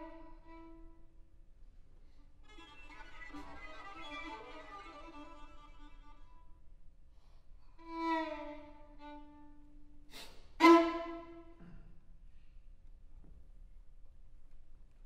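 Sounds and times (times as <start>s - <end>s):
scratchy bow stroke: 2.4s - 6.6s
violins playing: 2.4s - 6.6s.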